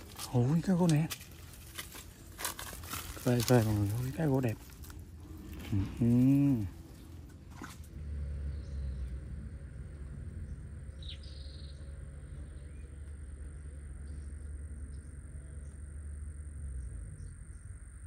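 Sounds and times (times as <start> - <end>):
low rumble: 0.0 - 18.0
bird chirp: 5.4 - 18.0.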